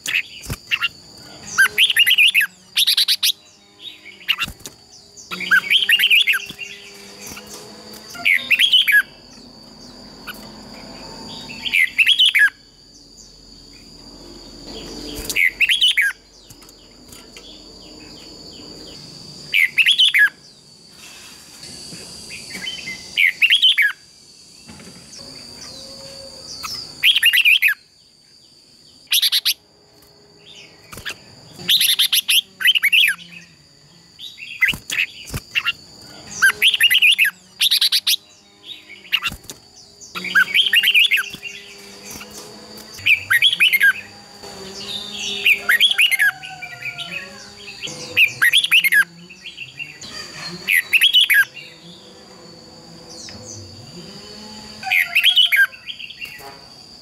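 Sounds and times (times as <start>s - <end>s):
bird singing warbled phrases: 0.0s - 9.2s, 11.2s - 12.6s, 14.6s - 18.4s, 19.5s - 20.5s, 22.4s - 24.0s, 26.4s - 27.9s, 28.9s - 29.6s, 30.4s - 52.1s, 54.8s - 56.4s.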